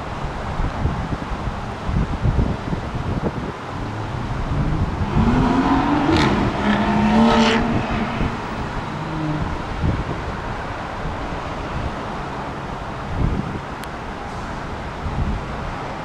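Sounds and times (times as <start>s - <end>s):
wind rumbling on microphone: 0.0s - 16.0s
vehicle engine passing: 3.6s - 10.6s.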